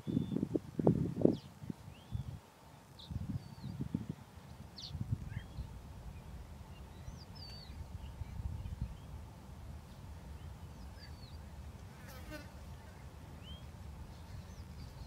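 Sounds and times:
bird chirps: 4.8 - 9.2, 10.4 - 11.5.

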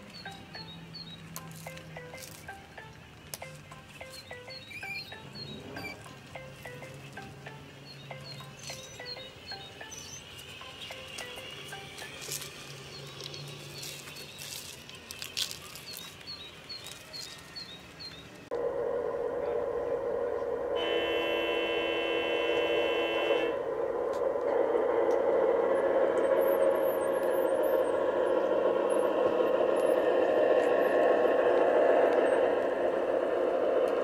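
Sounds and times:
model train motor hum: 16.8 - 34.0
train horn: 20.7 - 23.7.

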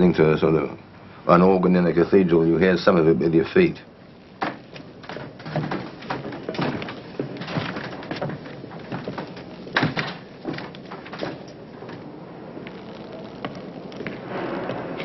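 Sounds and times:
irregular knocks and clicks: 4.4 - 12.1.

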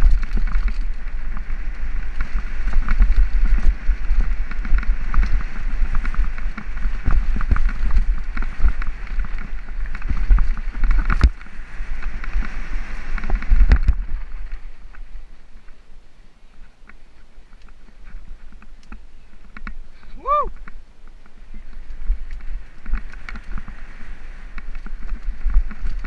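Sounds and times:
tyre rumble: 0.0 - 15.8
bike rattling over bumps: 0.0 - 15.9, 16.5 - 26.0
wind buffeting microphone: 0.0 - 26.0.

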